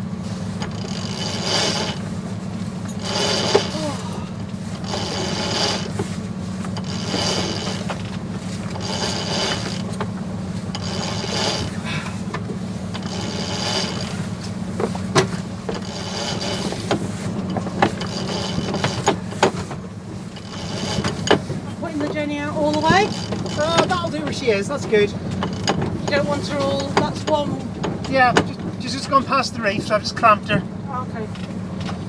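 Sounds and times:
winch ratchet clicks: 0.6s - 2.1s, 2.8s - 4.0s, 4.7s - 10.1s, 10.7s - 19.7s, 20.3s - 21.5s, 22.7s - 24.4s, 25.3s - 27.4s.

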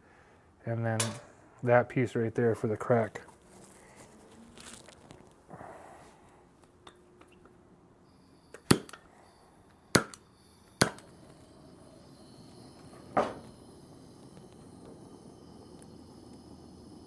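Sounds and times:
faint torch flame hiss: 0.1s - 7.2s, 7.8s - 17.0s
flame rushing alight: 8.1s - 17.0s.

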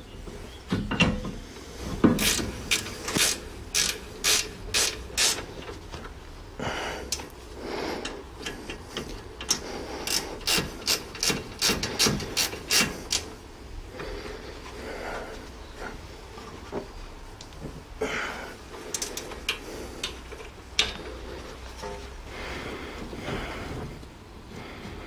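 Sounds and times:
ratchet wrench clicking: 2.2s - 5.5s, 9.4s - 13.3s.

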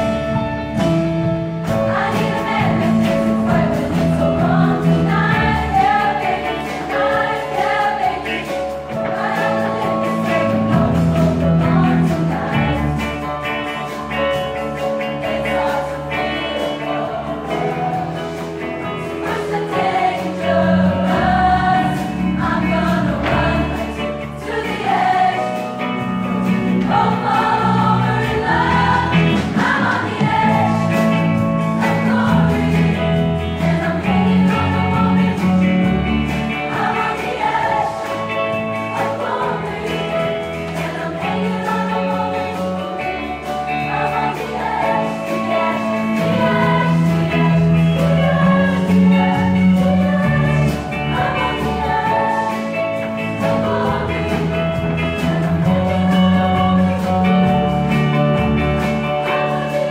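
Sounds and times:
instrumental accompaniment: 0.0s - 59.9s
choir singing: 1.7s - 59.9s
sustained bass line: 15.6s - 59.9s.

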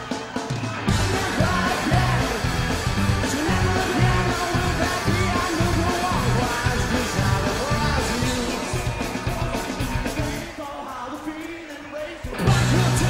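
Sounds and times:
strummed electric guitar: 0.0s - 10.6s, 12.2s - 13.0s
male lead vocal singing: 0.0s - 13.0s
steady drum beat: 0.0s - 13.0s
bass guitar: 0.5s - 10.4s, 12.3s - 13.0s.

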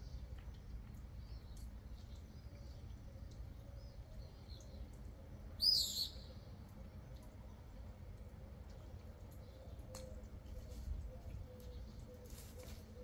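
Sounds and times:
small birds chirping: 0.0s - 7.7s.

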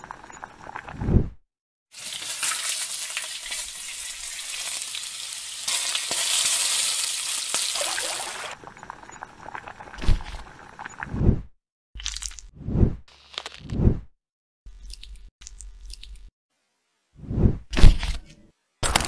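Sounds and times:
food sizzling in a pan: 1.9s - 8.6s.

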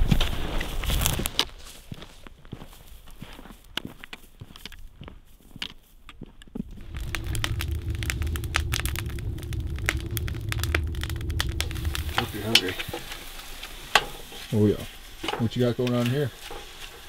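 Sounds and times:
steady low rumble: 6.6s - 14.0s
wood fire crackling: 6.6s - 17.0s.

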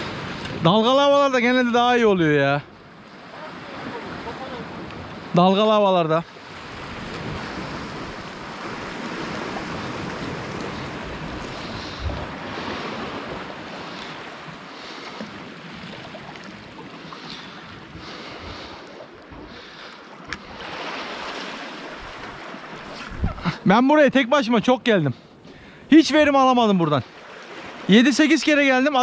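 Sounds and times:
waves breaking against rocks: 0.0s - 29.0s
wind on microphone: 6.6s - 13.6s, 21.9s - 23.6s.

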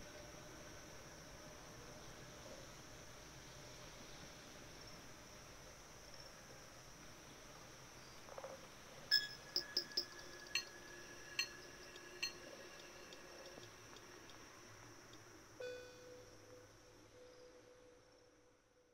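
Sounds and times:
faint high hiss: 0.0s - 18.9s
glassy clinking strikes: 9.1s - 12.4s
high ringing tone: 9.1s - 13.4s, 15.6s - 18.0s.

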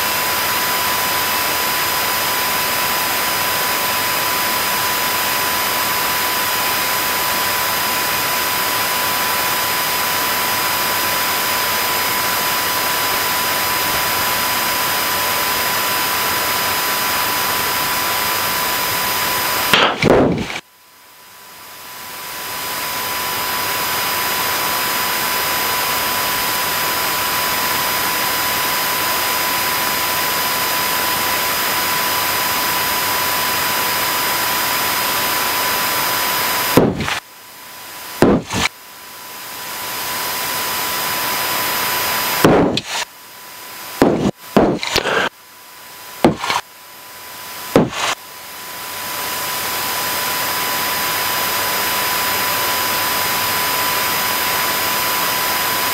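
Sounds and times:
thin steady whine: 0.0s - 55.9s
sharp knocks and jolts: 19.7s - 20.6s, 36.8s - 37.2s, 38.2s - 38.7s, 42.4s - 43.0s, 44.0s - 45.3s, 46.2s - 46.6s, 47.8s - 48.2s.

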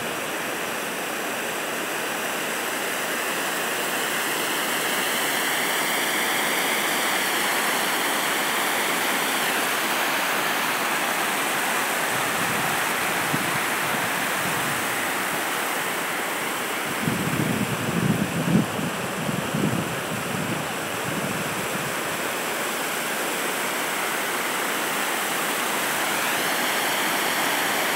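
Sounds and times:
water rushing over dam spillway: 0.0s - 27.9s
wind buffeting microphone: 16.6s - 22.1s.

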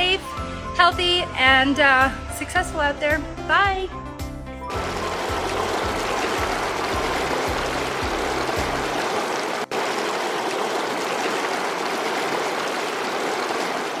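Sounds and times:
low pulsing bass music: 0.0s - 9.0s
stream rushing over rocks: 4.7s - 14.0s.

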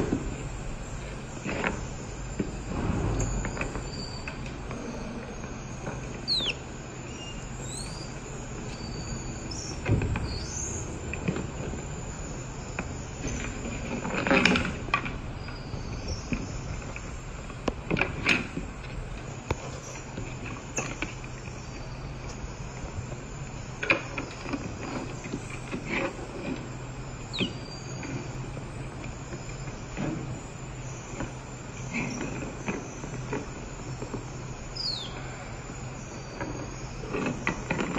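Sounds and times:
low hum: 0.0s - 13.6s
steady background hiss: 0.0s - 37.9s
monkey chirps and whistles: 6.2s - 10.7s, 27.3s - 27.8s, 34.8s - 35.2s.

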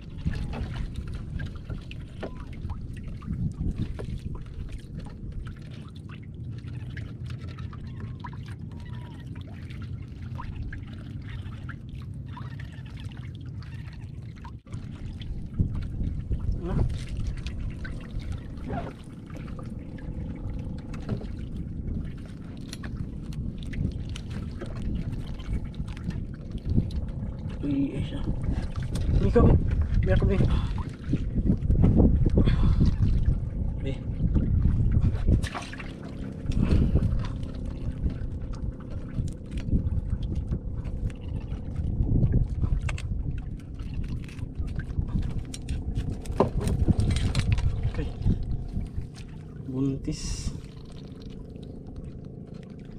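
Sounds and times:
wind and water rumble: 0.0s - 52.9s.

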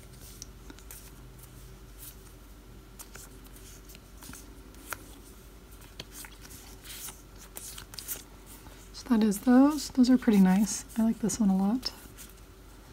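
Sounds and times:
paper stickers rustling: 3.0s - 11.4s.

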